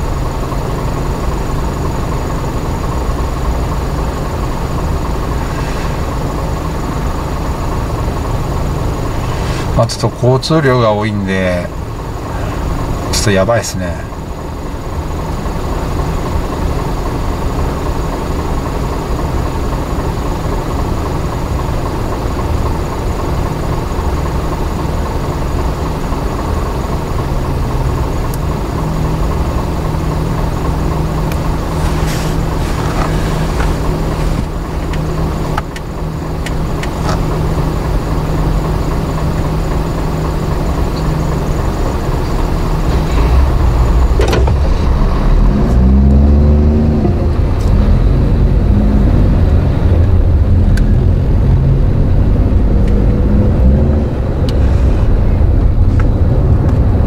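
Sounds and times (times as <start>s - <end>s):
low hum of idling traffic: 0.0s - 57.0s
car engine note rising: 41.0s - 57.0s.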